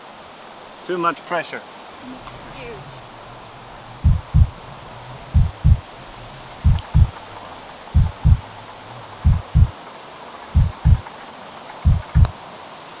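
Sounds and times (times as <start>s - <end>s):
faint steady hiss: 0.0s - 13.0s
heartbeat thumps: 3.9s - 5.9s, 6.5s - 7.2s, 7.9s - 8.5s, 9.2s - 9.7s, 10.6s - 11.0s, 11.8s - 12.3s.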